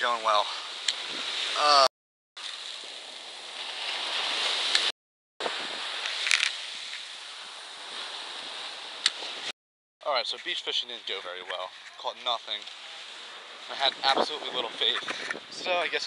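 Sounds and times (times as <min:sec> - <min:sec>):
ocean surf washing up beach: 0:00.0 - 0:01.7, 0:02.4 - 0:09.5, 0:12.1 - 0:16.0
wind on microphone: 0:01.0 - 0:01.6, 0:05.4 - 0:06.5, 0:13.7 - 0:16.0.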